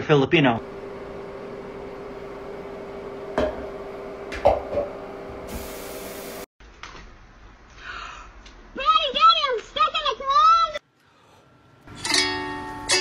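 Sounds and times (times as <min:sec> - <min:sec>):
steady hum: 0:00.6 - 0:06.5
faucet knocks: 0:03.4 - 0:03.7, 0:04.3 - 0:04.9
high hiss: 0:05.5 - 0:06.5.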